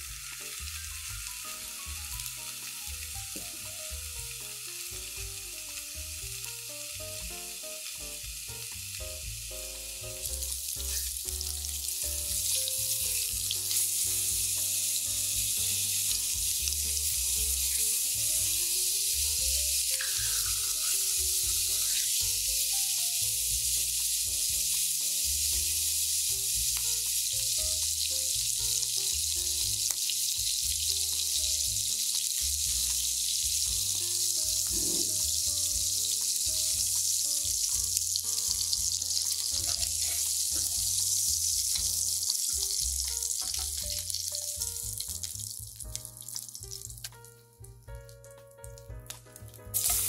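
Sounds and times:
pork sizzling in a frying pan: 0:00.0 - 0:50.0.

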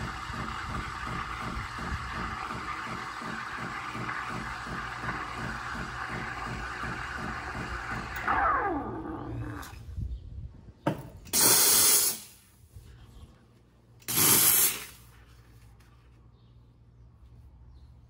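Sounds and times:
steam wand hissing: 0:11.3 - 0:12.4, 0:14.1 - 0:15.0
loud steam blasts: 0:11.3 - 0:12.5, 0:14.0 - 0:15.1.

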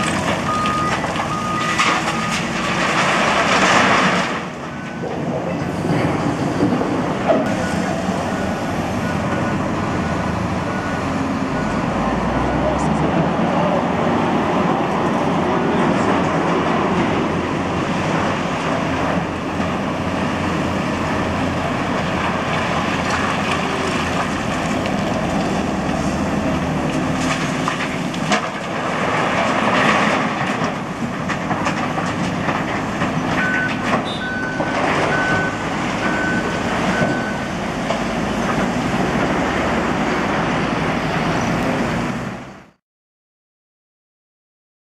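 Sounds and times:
diesel engines running: 0:00.0 - 0:42.8
short beeps: 0:00.5 - 0:02.4, 0:33.4 - 0:37.5.

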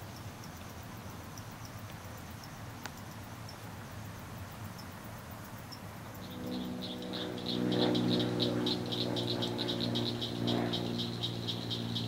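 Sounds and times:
insects chirping faintly: 0:00.0 - 0:12.0
rapid pulsing insect call: 0:00.0 - 0:12.0
low drone: 0:06.1 - 0:12.0.

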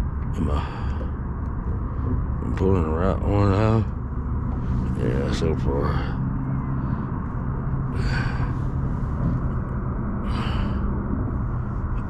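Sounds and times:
breathy exhales: 0:07.8 - 0:09.5, 0:10.2 - 0:11.2.

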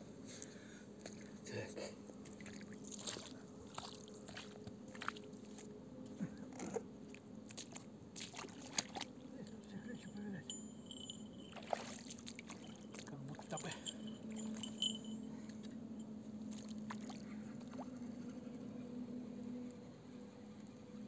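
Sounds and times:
faint steady hum: 0:00.0 - 0:21.0.

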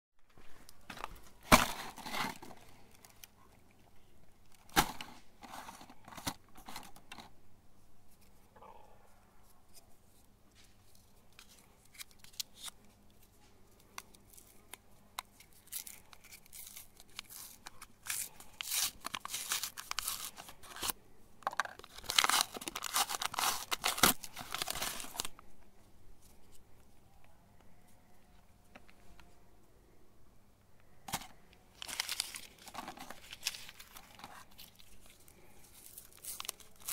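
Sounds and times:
wrapper crinkling and tearing: 0:14.1 - 0:21.0, 0:21.6 - 0:25.4, 0:31.1 - 0:36.9.

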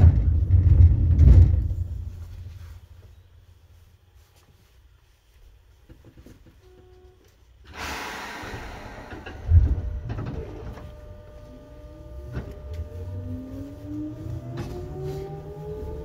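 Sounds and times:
air hiss: 0:07.6 - 0:10.6
train motor whine rising: 0:07.7 - 0:16.0.

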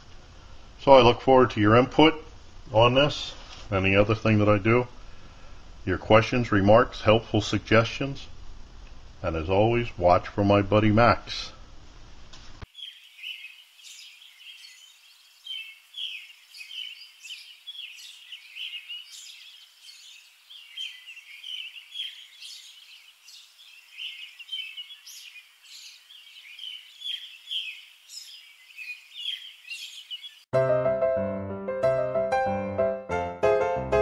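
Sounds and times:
small birds chirping: 0:12.6 - 0:30.5.

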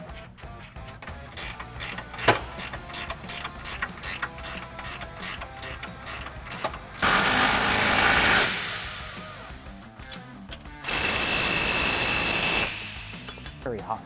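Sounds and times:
ratchet wrench clicking: 0:00.6 - 0:07.1
power tool whirring: 0:01.4 - 0:09.0, 0:10.8 - 0:13.1.

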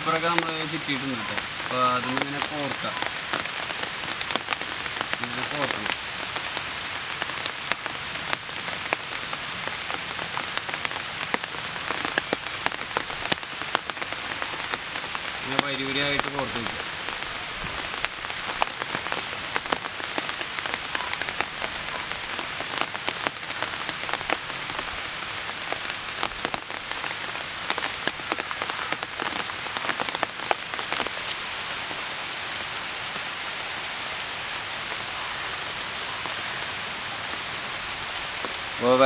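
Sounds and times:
heavy rain falling: 0:00.0 - 0:39.0.

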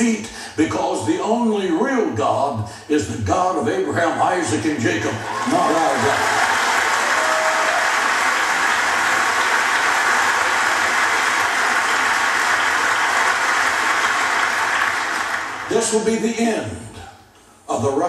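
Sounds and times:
congregation applauding: 0:05.2 - 0:16.0.

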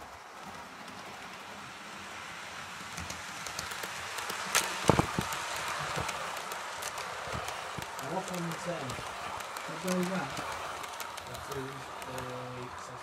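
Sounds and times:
model train rolling hiss: 0:00.0 - 0:13.0
wheels clicking on track: 0:00.0 - 0:13.0.

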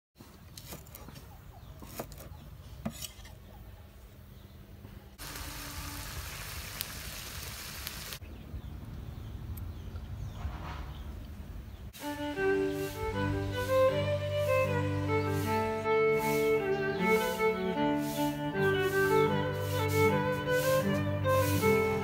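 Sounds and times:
food sizzling in a wok: 0:05.2 - 0:08.2
knife strokes on chopping board: 0:14.4 - 0:22.0.

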